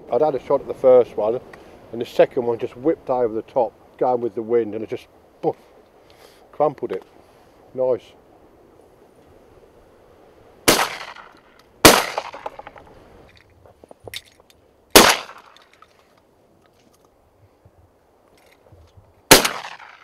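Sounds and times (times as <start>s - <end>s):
shotgun shots: 10.7s - 12.8s, 14.9s - 15.6s, 19.3s - 20.0s.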